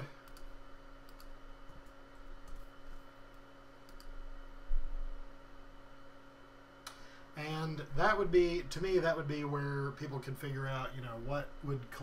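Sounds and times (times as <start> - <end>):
steady electrical hum: 0.0 - 12.0
faint computer mouse clicks: 3.9 - 4.1.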